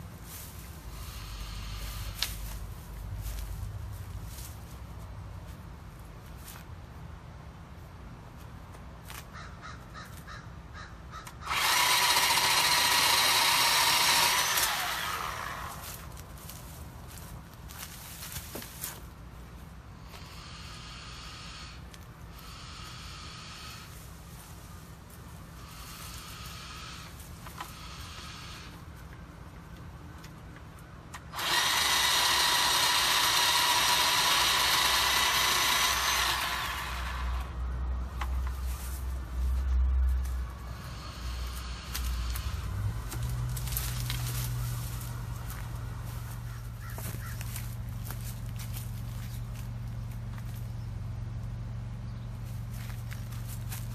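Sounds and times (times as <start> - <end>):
electric chainsaw whining: 11.2 - 16.2, 31.1 - 37.7, 40.6 - 49.3.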